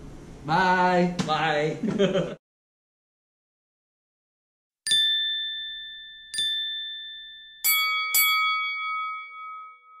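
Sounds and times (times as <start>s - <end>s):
bell-like chime dings: 4.9s - 10.0s.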